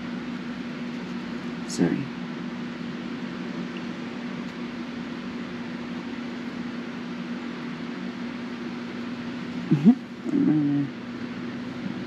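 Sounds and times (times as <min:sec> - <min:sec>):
steady low hum with hiss: 0:00.0 - 0:12.0.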